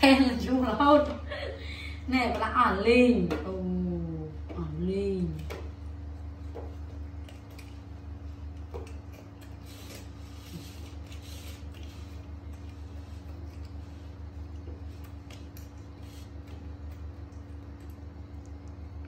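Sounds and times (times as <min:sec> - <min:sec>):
low mechanical hum: 0:00.0 - 0:19.0
monkey eating watermelon: 0:05.6 - 0:19.0.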